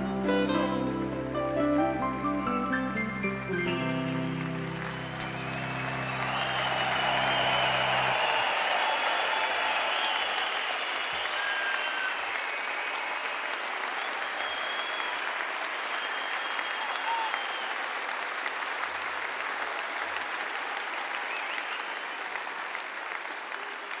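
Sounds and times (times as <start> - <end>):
large audience applauding: 2.1 - 24.0.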